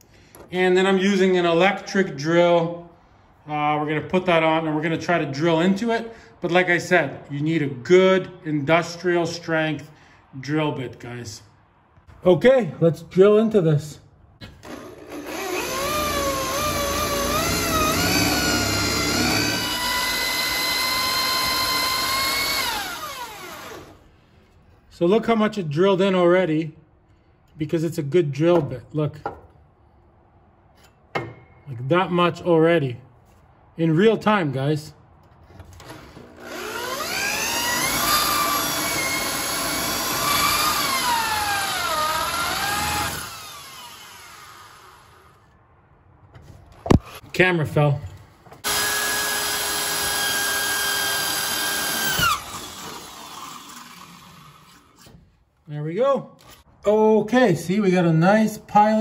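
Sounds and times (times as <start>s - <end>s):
electric drill boring into metal: 14.6s - 24.0s, 35.8s - 45.2s, 48.6s - 55.0s.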